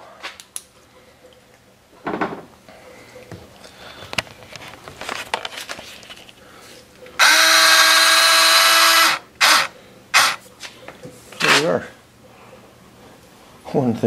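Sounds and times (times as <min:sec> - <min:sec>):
small electric motor buzzing: 0:07.2 - 0:10.4.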